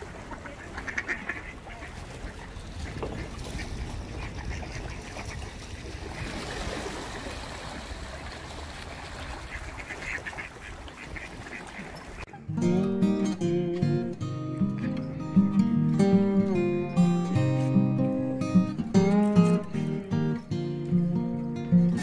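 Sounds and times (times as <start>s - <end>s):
ducks quacking: 0.0s - 6.3s, 9.3s - 20.4s.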